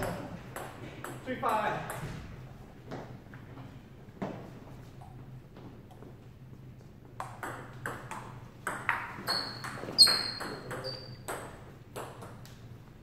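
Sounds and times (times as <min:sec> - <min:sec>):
brief high squeaks: 0:09.3 - 0:11.2.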